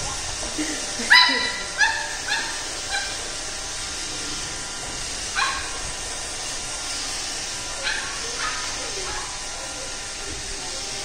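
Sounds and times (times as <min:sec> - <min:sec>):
robot vacuum whirring: 0:00.0 - 0:11.0
puppy barking: 0:01.0 - 0:03.3, 0:05.3 - 0:05.8, 0:07.8 - 0:09.3.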